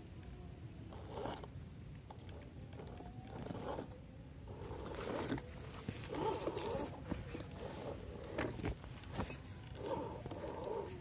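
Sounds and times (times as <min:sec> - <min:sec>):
electric motor and gears whining: 0:00.8 - 0:11.0
tyres scrabbling and clicking: 0:04.5 - 0:11.0.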